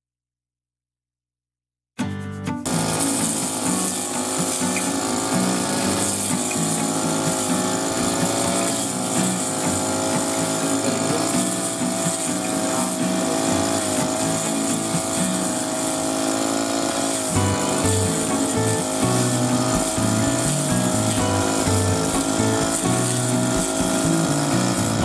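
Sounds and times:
brush cutter engine cutting grass: 2.6 - 25.0.

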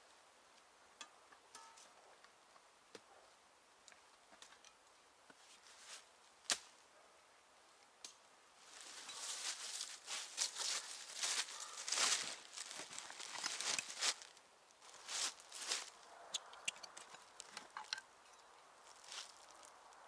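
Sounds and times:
sharp snap: 6.5 - 6.7
rustling and crackling: 8.6 - 20.0.

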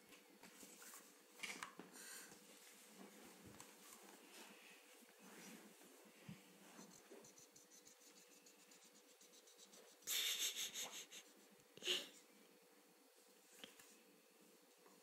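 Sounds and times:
marker scribbling on paper: 6.8 - 11.5.

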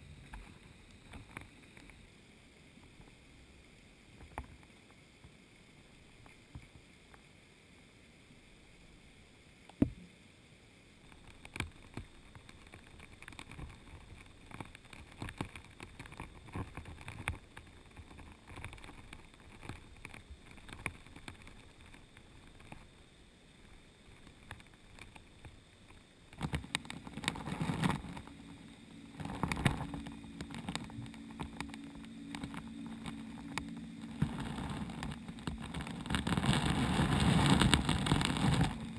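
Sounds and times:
boat engine hum through water: 0.0 - 38.9
faint underwater hiss: 0.0 - 38.9
underwater clicks and knocks: 11.1 - 22.9, 24.1 - 38.9.

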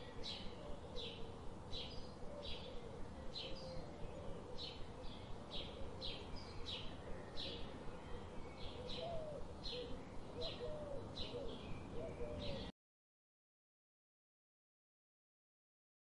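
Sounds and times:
low background noise: 0.0 - 12.7
low bird warbling calls: 0.0 - 12.7.

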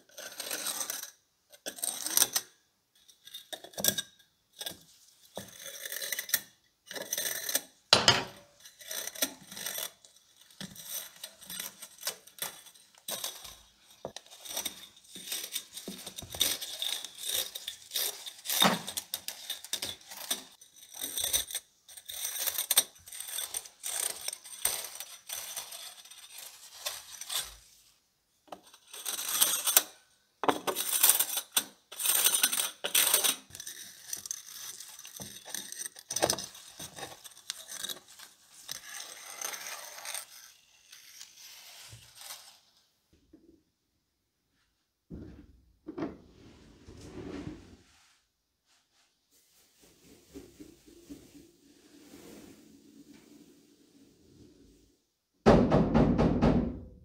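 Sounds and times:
wire jingling and scraping on ceramic: 0.1 - 27.9, 28.5 - 42.6.

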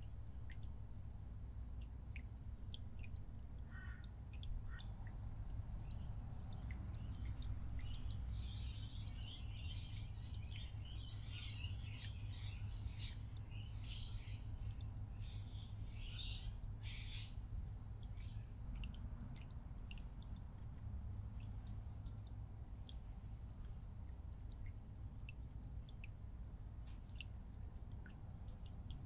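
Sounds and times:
small birds chirping: 3.0 - 19.1.

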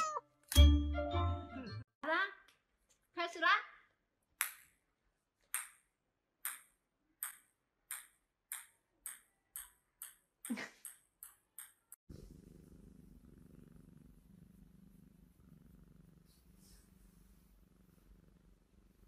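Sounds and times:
ball bouncing on tiled floor: 4.4 - 4.8, 5.5 - 5.8, 6.4 - 12.0
cat purring: 12.1 - 19.0.

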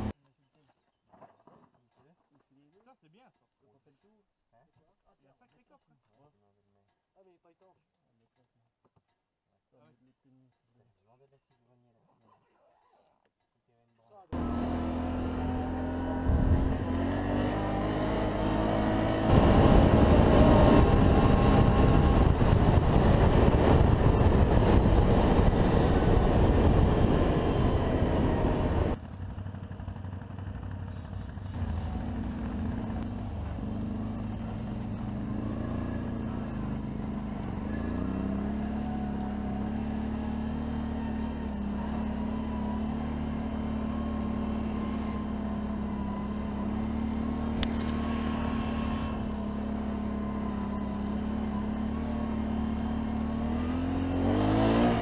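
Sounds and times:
atv engine running: 14.4 - 55.0
rushing noise: 18.3 - 29.0.

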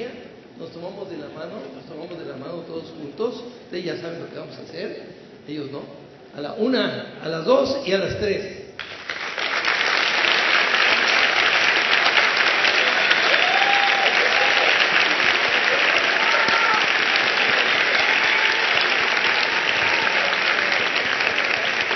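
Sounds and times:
large audience applauding: 8.8 - 21.9
people whooping and calling out: 12.8 - 21.9.

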